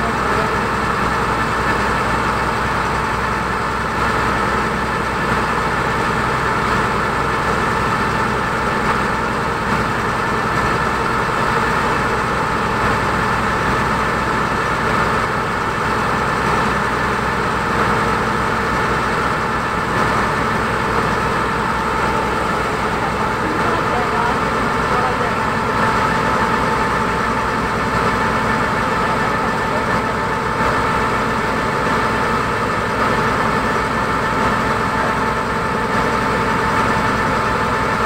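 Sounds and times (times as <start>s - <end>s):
ferry engine droning: 0.0s - 38.0s.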